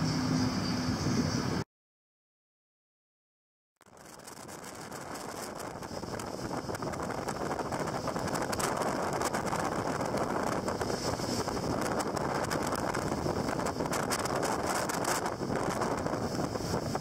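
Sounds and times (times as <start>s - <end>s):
boat engine: 0.0s - 1.6s, 3.9s - 17.0s
wind buffeting microphone: 3.9s - 17.0s.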